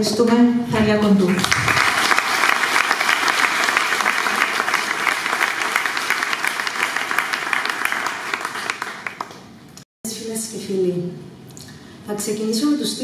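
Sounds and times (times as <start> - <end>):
audience applauding: 1.3 - 9.6.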